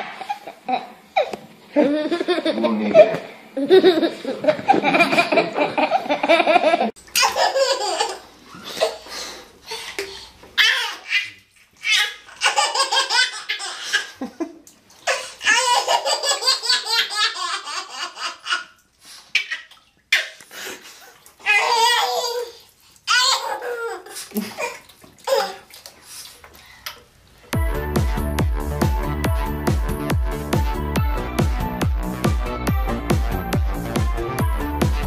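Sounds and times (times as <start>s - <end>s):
baby laughing: 0.0s - 9.1s, 10.6s - 14.4s, 15.0s - 18.8s, 21.4s - 25.7s.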